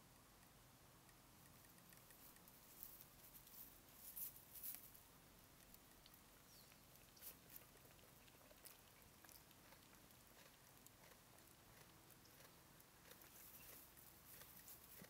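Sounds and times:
sheep chewing clicks: 5.6 - 15.0.

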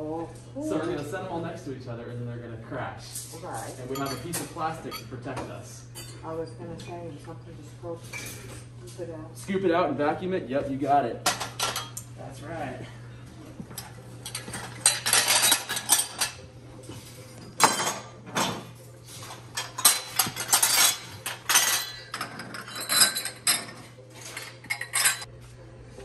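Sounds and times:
glasses clinking together: 3.9 - 5.2, 14.2 - 16.4, 17.4 - 18.6, 19.5 - 25.3.

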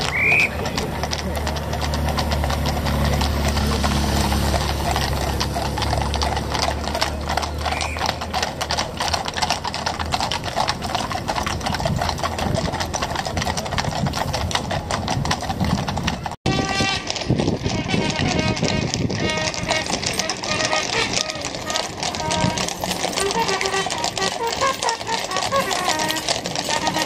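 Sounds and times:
horse hooves clip-clopping on pavement: 0.0 - 27.0.

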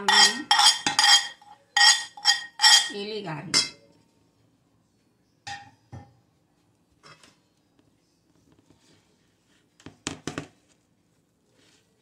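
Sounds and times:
metal spoon knocking on pot: 0.0 - 3.8.

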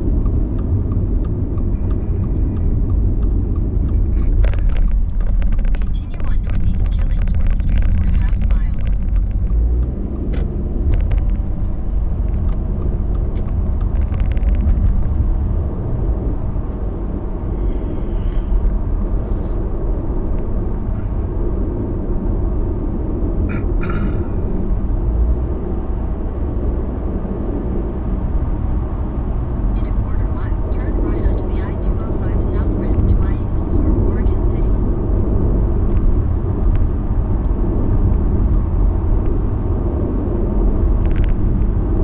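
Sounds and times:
car road and engine rumble: 0.0 - 42.0.

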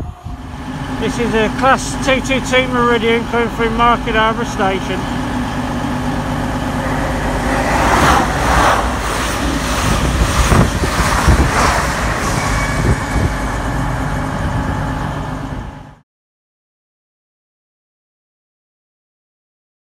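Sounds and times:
diesel engine hum: 0.0 - 16.0
train wheels and air rushing: 4.5 - 16.0
sharp train knocks: 5.8 - 14.5.

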